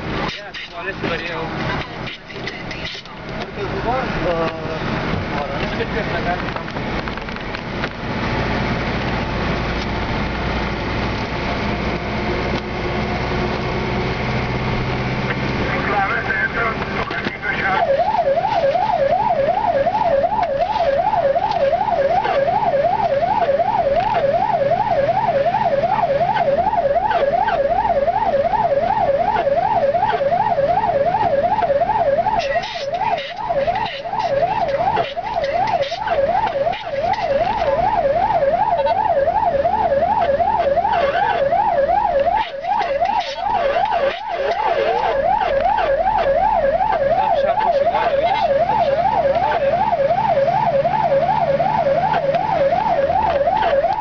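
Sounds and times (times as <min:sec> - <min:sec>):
engine and road noise: 0:00.0 - 0:54.0
siren yelping: 0:15.7 - 0:54.0.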